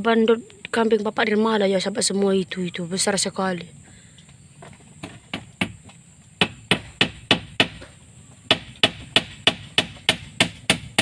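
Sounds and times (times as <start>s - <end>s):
hammering on wood: 5.0s - 11.0s.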